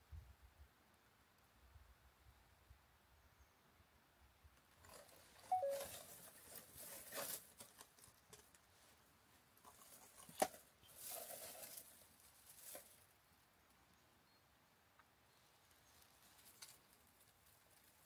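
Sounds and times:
dry grass and leaves rustling: 0:04.6 - 0:13.6, 0:15.5 - 0:18.0
two-note squeak: 0:05.5 - 0:05.9.

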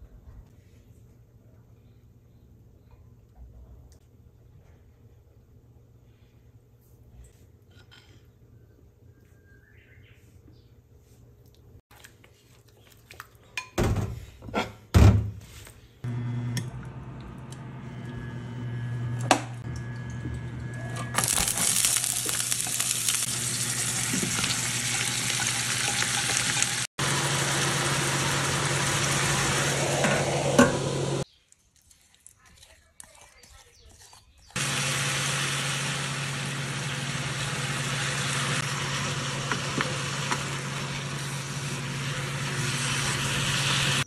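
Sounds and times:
food sizzling in hot oil: 0:21.1 - 0:31.2, 0:34.6 - 0:44.0.

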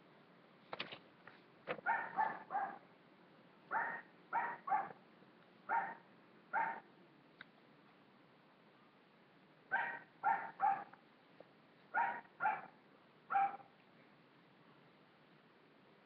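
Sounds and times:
dog barking: 0:01.8 - 0:02.8, 0:03.7 - 0:05.0, 0:05.7 - 0:06.9, 0:09.7 - 0:11.0, 0:11.9 - 0:13.7.

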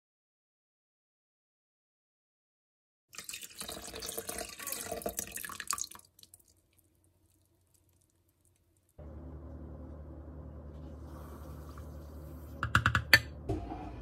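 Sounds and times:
liquid pouring into metal bowl: 0:03.1 - 0:09.0
low-pitched hum: 0:09.0 - 0:14.0.

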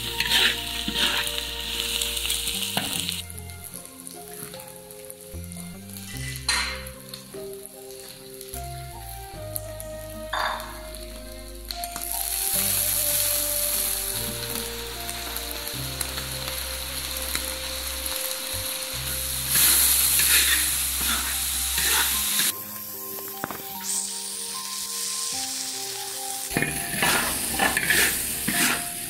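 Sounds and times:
spatula stirring in wok: 0:00.0 - 0:03.2, 0:19.2 - 0:22.5, 0:26.5 - 0:29.0
prawns sizzling in hot oil: 0:00.0 - 0:29.0.

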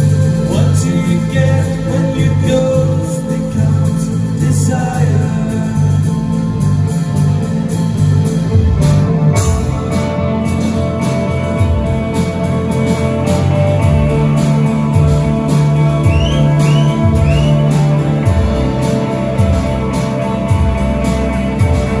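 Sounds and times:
band playing instrumental music: 0:00.0 - 0:22.0.

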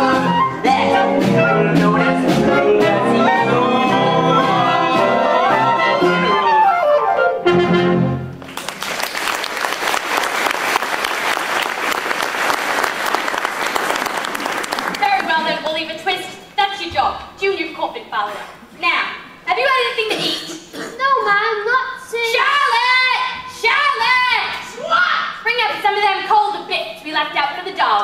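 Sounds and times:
pit orchestra with brass: 0:00.0 - 0:08.4
audience applause: 0:08.4 - 0:15.8.

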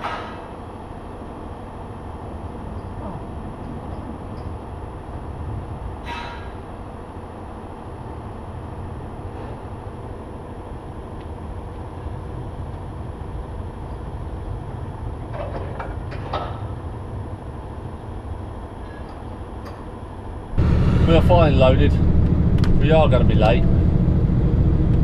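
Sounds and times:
diesel engine rumbling: 0:19.4 - 0:25.0.

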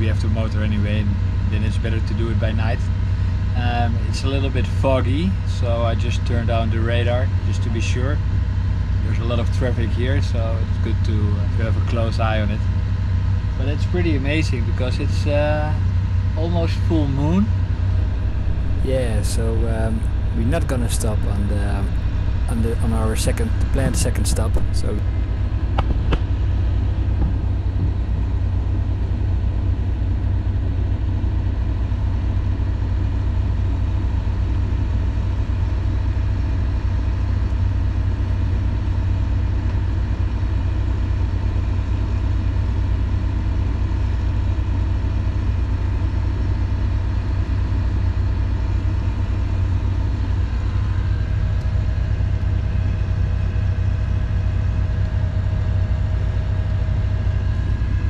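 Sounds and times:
diesel engine droning: 0:00.0 - 0:58.0.

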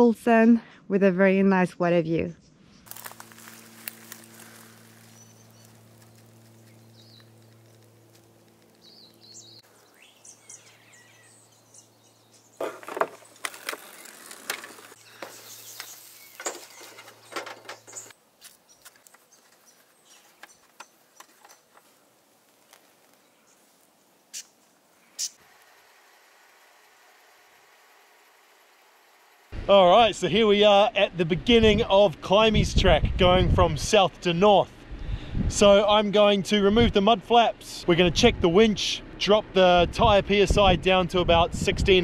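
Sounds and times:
low steady hum: 0:02.9 - 0:15.3
faint bird chirps: 0:04.2 - 0:08.0.

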